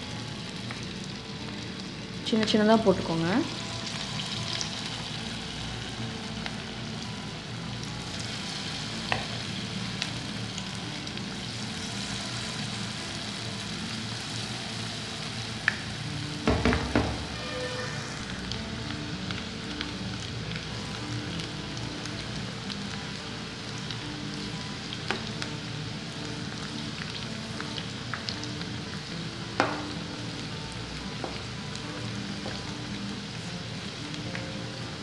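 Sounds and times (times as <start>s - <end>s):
food deep-frying in oil: 0.0s - 35.0s
knocks: 16.5s - 17.3s.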